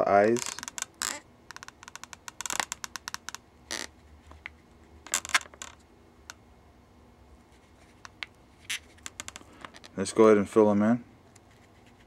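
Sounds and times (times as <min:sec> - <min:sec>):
marker scratching on balloon: 0:00.4 - 0:05.5, 0:07.5 - 0:09.4, 0:11.4 - 0:12.0.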